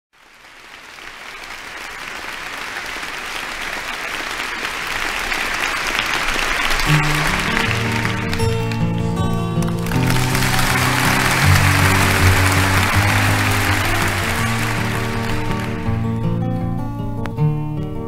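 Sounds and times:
audience applauding: 0.1 - 16.4
acoustic guitar picking: 6.9 - 13.1, 14.4 - 18.0.

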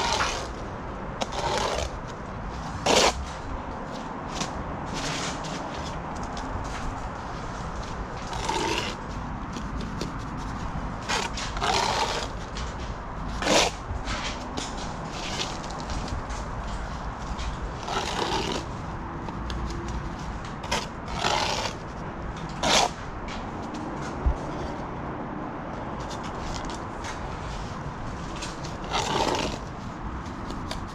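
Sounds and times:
trowel scraping mortar: 0.0 - 0.6, 1.2 - 3.4, 8.2 - 18.8, 20.5 - 23.0, 28.2 - 29.7
steady background noise: 0.0 - 30.9.

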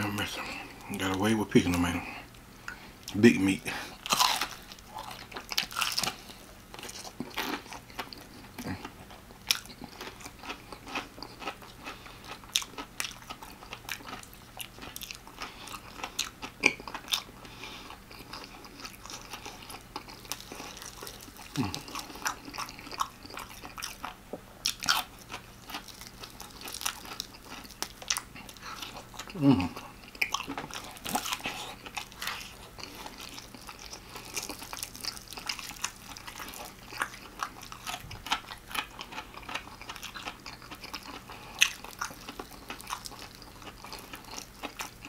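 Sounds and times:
crunching fried chicken: 3.1 - 45.0
chewing: 3.9 - 45.0.

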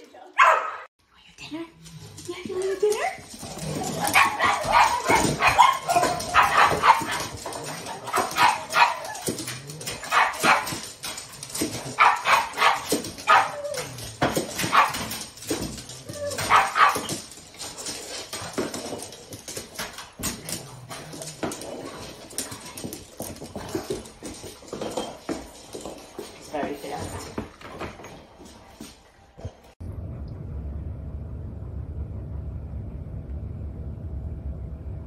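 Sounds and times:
dogs barking and yipping: 0.4 - 0.9, 3.2 - 26.1.

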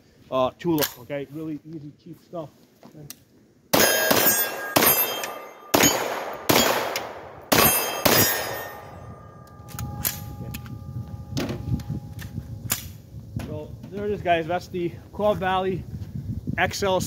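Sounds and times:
gunshots with echo: 3.7 - 9.2
faint lingering ring: 7.6 - 12.3.

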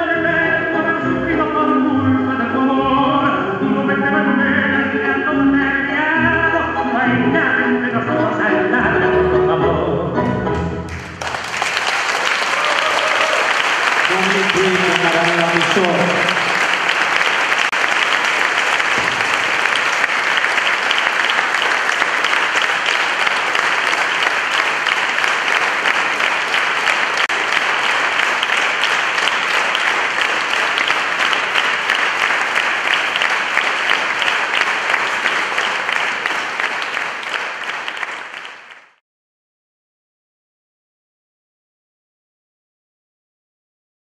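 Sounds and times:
audience applauding: 10.9 - 39.0.

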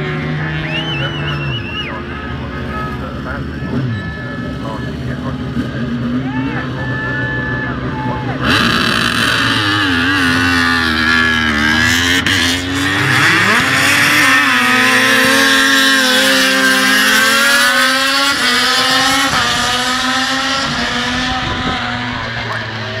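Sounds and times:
racing motorcycles passing at high revs: 8.4 - 23.0.

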